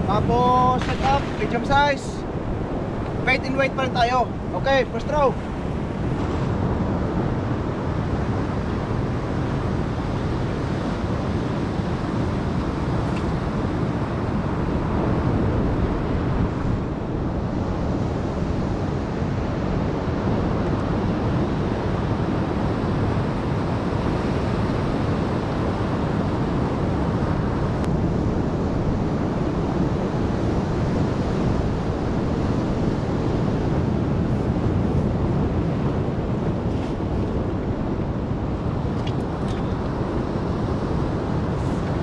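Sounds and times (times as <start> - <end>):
surf breaking on rocks: 0.0 - 2.5
wind buffeting microphone: 0.0 - 42.0.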